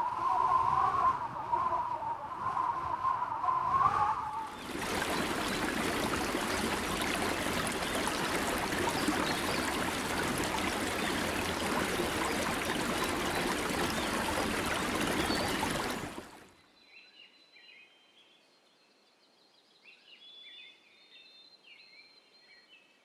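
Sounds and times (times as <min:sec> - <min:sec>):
waterfall rushing: 0:04.5 - 0:16.4.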